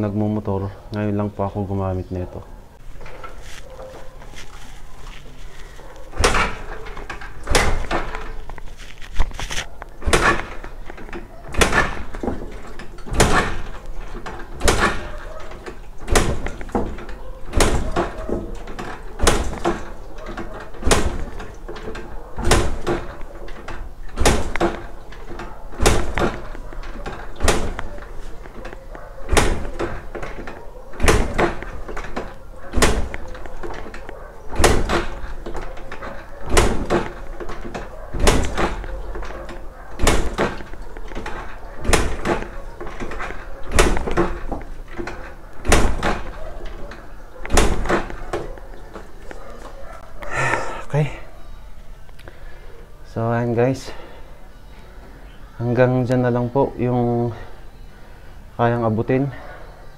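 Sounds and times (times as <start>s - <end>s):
sharp clunk: 6.1s - 8.5s.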